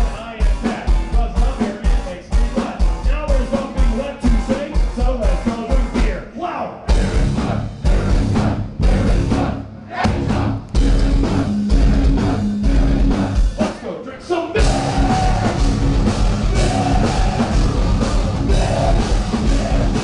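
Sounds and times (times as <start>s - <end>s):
live metal band playing: 0.0s - 6.2s, 6.9s - 13.8s, 14.6s - 20.0s.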